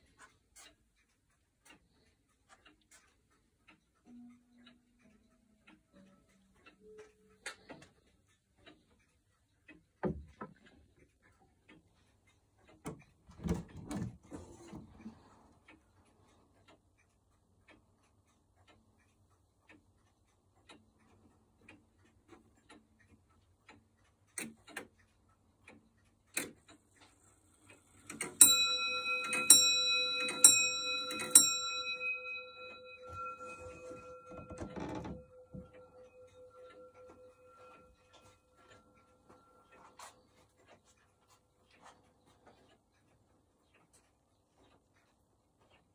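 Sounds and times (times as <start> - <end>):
clock ticking: 0.0 - 45.9
clock bell striking: 28.4 - 39.7
knock and handling noise: 33.1 - 35.7.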